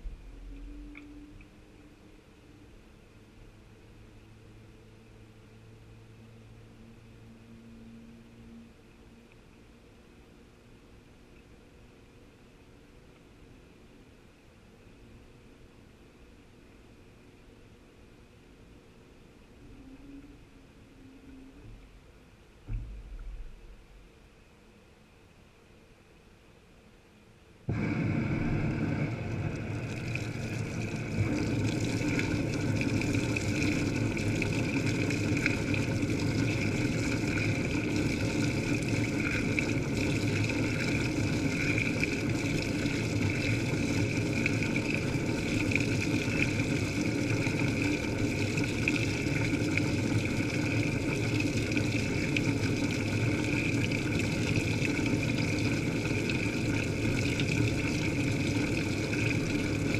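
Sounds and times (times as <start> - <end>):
water pouring and splashing: 27.7 - 59.9.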